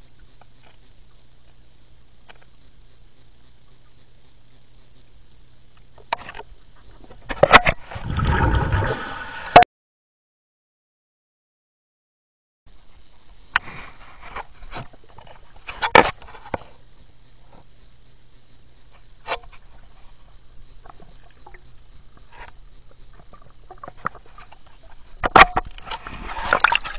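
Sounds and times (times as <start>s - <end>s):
faint underwater hiss: 0.0s - 9.6s, 12.7s - 26.9s
water sloshing: 7.8s - 9.4s, 20.7s - 26.9s.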